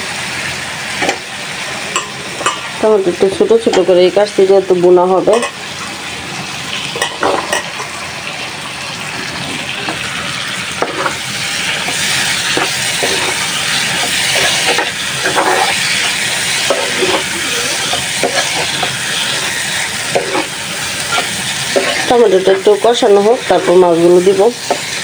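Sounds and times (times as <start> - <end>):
vegetables sizzling in oil: 0.0 - 25.0
metal spoon scraping pan: 10.8 - 11.2, 11.8 - 25.0.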